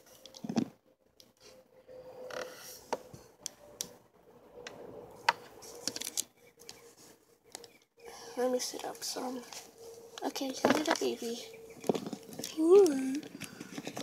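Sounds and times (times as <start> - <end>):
plastic toys clicking: 11.8 - 14.0.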